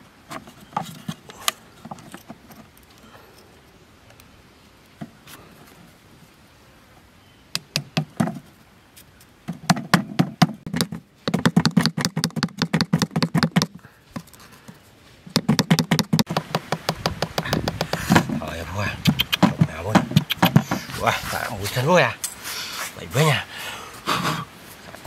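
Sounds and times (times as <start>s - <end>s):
stick tapped into ground: 10.7s - 13.8s, 15.3s - 18.3s.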